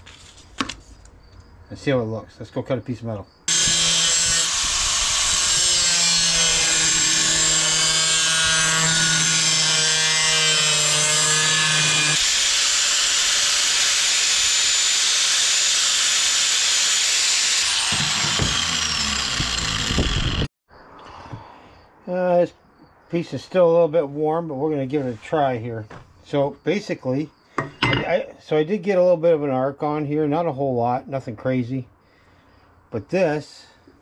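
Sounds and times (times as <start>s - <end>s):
angle grinder cutting metal: 3.5s - 20.5s
grinder coasting down: 3.5s - 20.5s.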